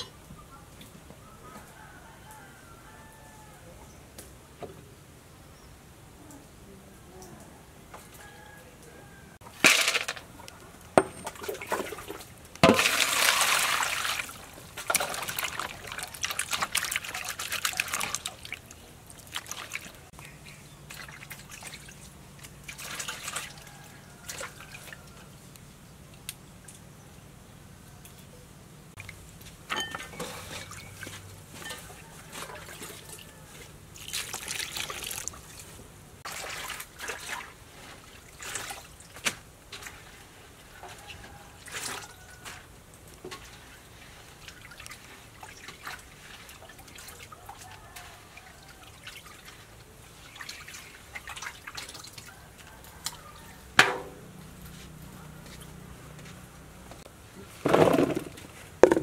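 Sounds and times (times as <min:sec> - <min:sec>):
water splashing and dripping: 0:11.2 - 0:25.3, 0:29.0 - 0:55.9
metal basin clanking on table: 0:29.7 - 0:30.9.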